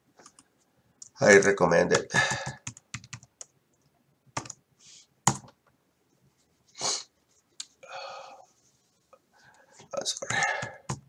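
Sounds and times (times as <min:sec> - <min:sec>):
short hiss: 0:06.7 - 0:07.1.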